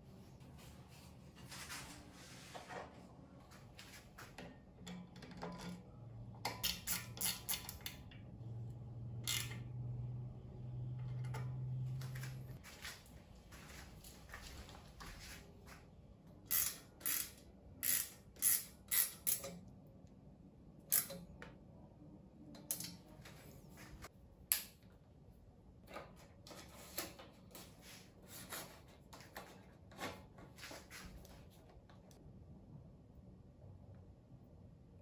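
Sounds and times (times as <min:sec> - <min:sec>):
metal clicks and taps of tools: 0:22.6 - 0:23.1.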